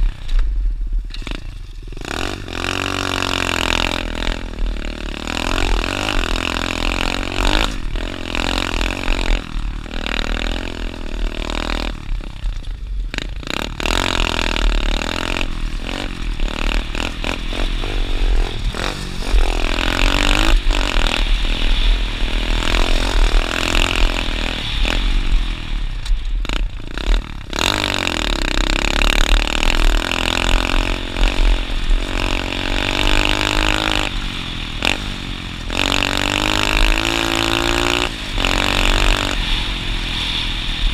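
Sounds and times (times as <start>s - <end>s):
dirt bike engine revving: 1.1s - 40.9s.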